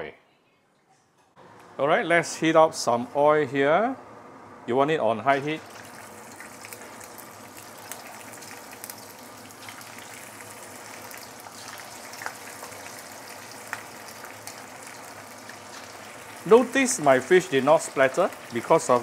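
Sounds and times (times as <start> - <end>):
fish deep-frying in oil: 5.4 - 19.0.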